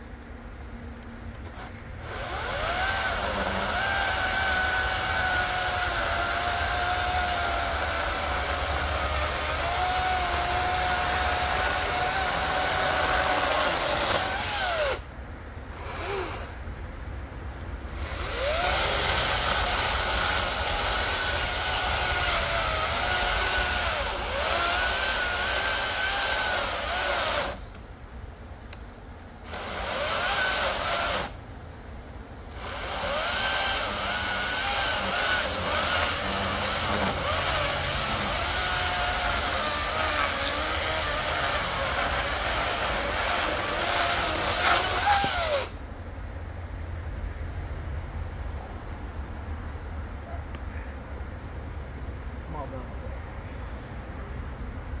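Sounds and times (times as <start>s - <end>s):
electric chainsaw cutting log: 2.0s - 15.1s, 15.8s - 16.6s, 17.9s - 27.6s, 29.4s - 31.4s, 32.6s - 45.8s.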